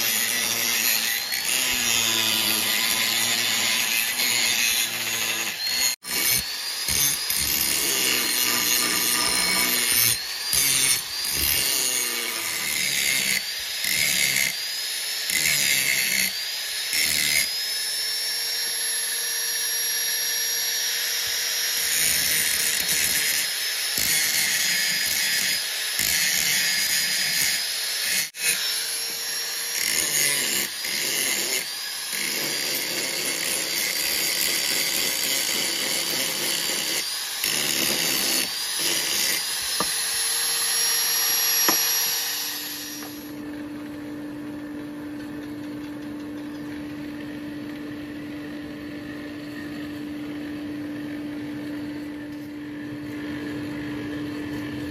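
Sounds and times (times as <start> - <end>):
angle grinder grinding metal: 0.0 - 43.5.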